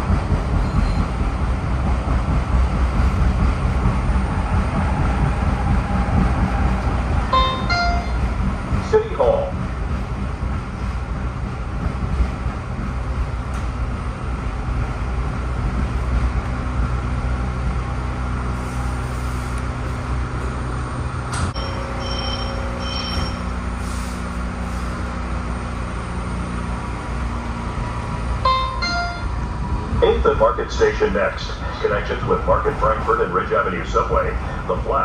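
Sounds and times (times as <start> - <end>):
train rumbling in a tunnel: 0.0 - 35.0
brief high-pitched tones: 7.3 - 8.3.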